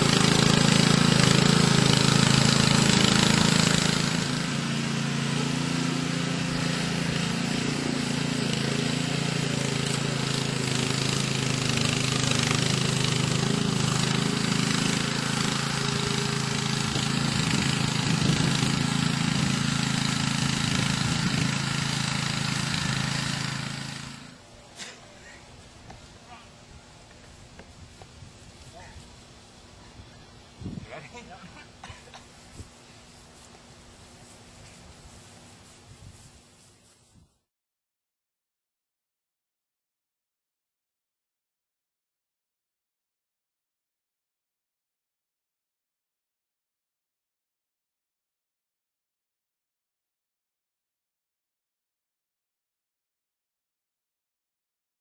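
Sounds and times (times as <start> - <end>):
power barrow engine running: 0.0 - 31.4.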